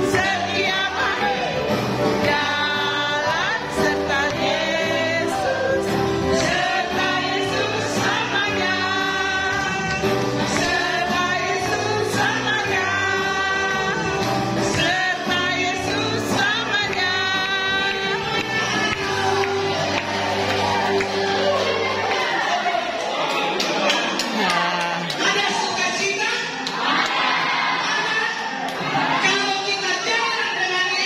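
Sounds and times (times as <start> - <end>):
band accompaniment: 0.0 - 22.4
voices singing together: 0.0 - 23.0, 26.7 - 30.4.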